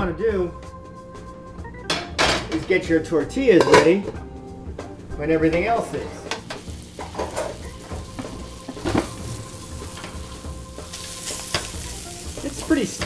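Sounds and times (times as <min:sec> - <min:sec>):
sausage sizzling in a frying pan: 0:06.4 - 0:13.0.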